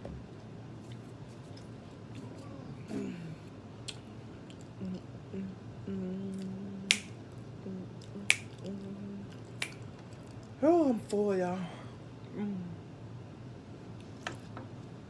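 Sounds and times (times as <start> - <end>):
woman humming: 2.5 - 3.5, 4.7 - 9.4, 12.3 - 12.9
finger snaps: 6.9 - 7.1, 8.1 - 8.7, 9.6 - 9.8.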